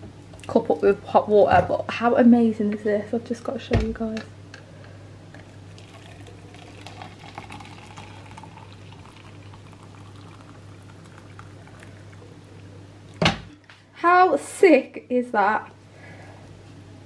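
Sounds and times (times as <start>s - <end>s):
water pouring into a plastic cup: 5.4s - 13.2s.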